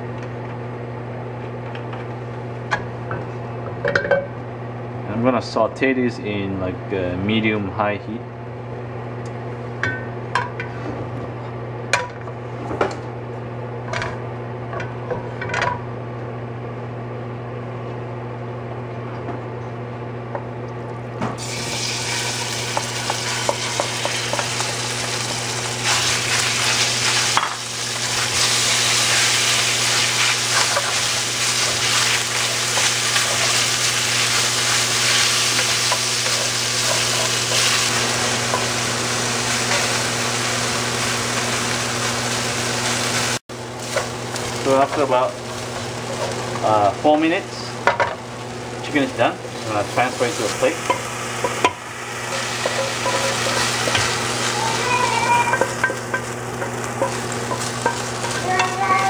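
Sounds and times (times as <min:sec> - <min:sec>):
chicken sizzling in hot oil: 0:21.4 - 0:59.0.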